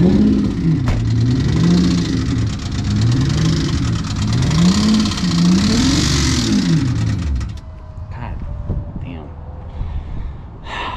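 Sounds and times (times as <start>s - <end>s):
car engine revving: 0.0s - 7.6s
fast ragged engine ticking: 0.0s - 7.6s.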